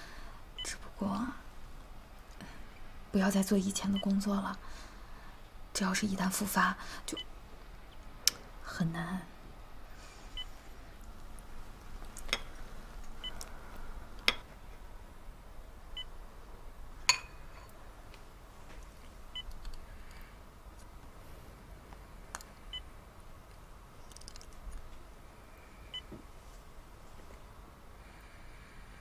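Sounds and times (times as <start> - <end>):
patient monitor beeps: 3.9 - 4.1, 13.1 - 13.5, 25.9 - 26.1
porcelain spoon clinking bowl: 17.1 - 17.7.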